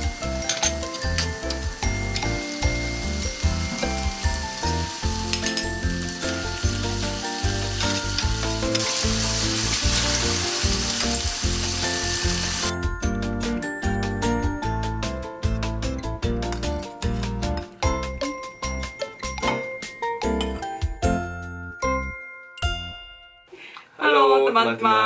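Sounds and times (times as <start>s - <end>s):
eggs sizzling in a pan: 0.0s - 12.7s.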